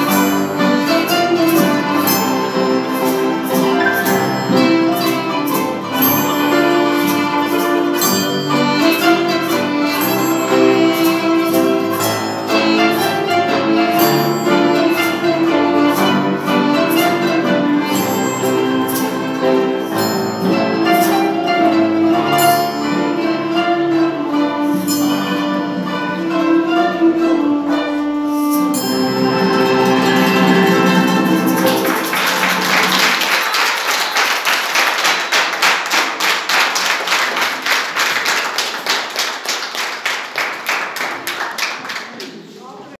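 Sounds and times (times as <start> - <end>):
ensemble of zithers piano and duduk: 0.0 - 31.7
audience applause: 31.3 - 42.6.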